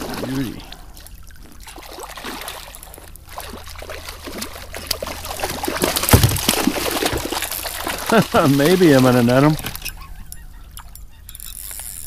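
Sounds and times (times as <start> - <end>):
fish thrashing water splashing: 0.0 - 9.9
thump: 6.1 - 6.5.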